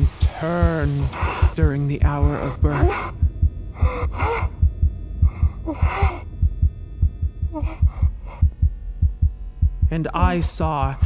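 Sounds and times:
breathy vocal sounds: 0.0s - 6.6s, 7.4s - 8.7s
low heartbeat-like pulse: 0.0s - 11.0s.

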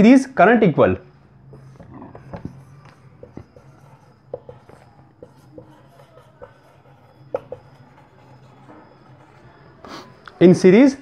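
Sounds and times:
marker writing on whiteboard: 1.4s - 10.3s.

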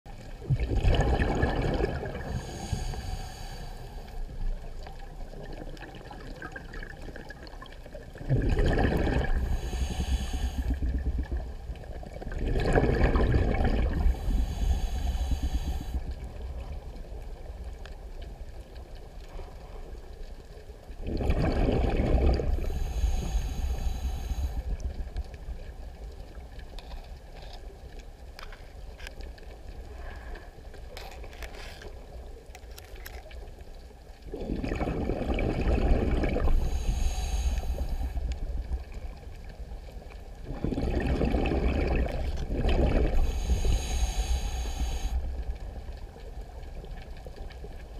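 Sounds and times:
low underwater rumble: 0.1s - 47.9s
diver exhaling bubbles: 0.4s - 3.6s, 5.5s - 11.5s, 12.2s - 15.9s, 21.0s - 24.6s, 34.3s - 38.1s, 40.4s - 45.1s
regulator inhale hiss: 2.2s - 4.4s, 9.4s - 11.4s, 14.1s - 16.4s, 22.5s - 24.9s, 36.4s - 38.4s, 43.1s - 45.5s.

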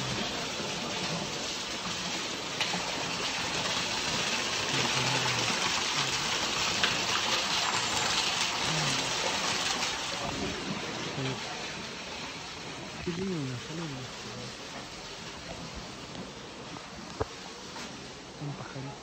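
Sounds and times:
waterfall splashing onto rocks: 0.0s - 18.0s.

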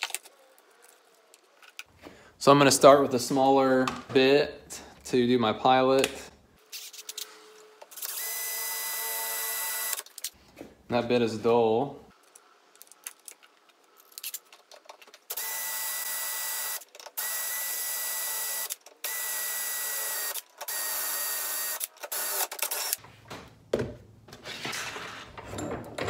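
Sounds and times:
drill motor whine: 8.1s - 10.0s.

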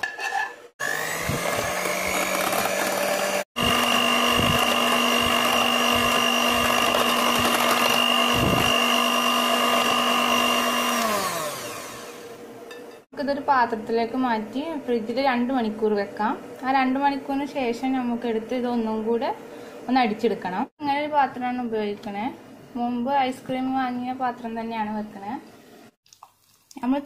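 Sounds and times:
electric hand mixer whining: 0.8s - 12.5s.

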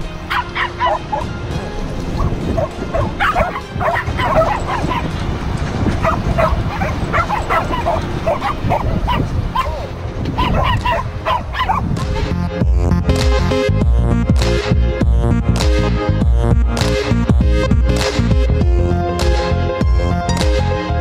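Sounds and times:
dogs barking and yipping: 0.0s - 12.4s.

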